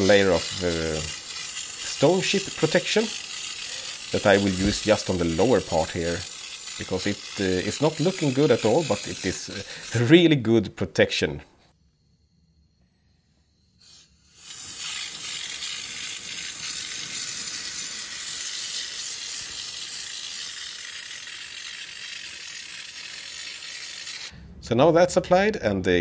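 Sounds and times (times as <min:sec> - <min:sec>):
spray gun hissing: 0:00.0 - 0:10.1, 0:13.8 - 0:24.3
brief air puff: 0:09.0 - 0:10.0, 0:13.8 - 0:17.1.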